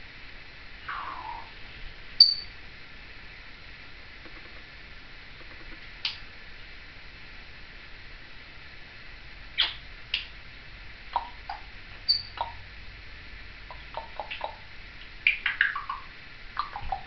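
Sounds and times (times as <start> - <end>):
falling chirps: 0.8 - 1.6, 2.2 - 2.5, 11.2 - 12.6
parrot chattering: 0.9 - 1.6, 9.6 - 9.8, 11.1 - 12.6, 13.7 - 14.7, 15.3 - 17.0.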